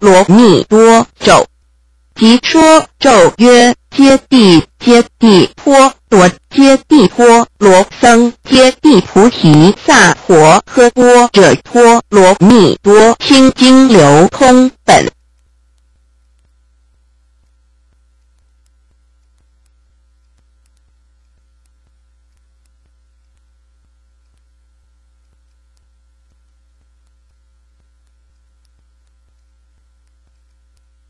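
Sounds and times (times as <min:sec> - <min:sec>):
electrical mains hum: 0:00.0 - 0:31.0
faint steady tones: 0:00.0 - 0:31.0
faint clicks: 0:15.2 - 0:31.0.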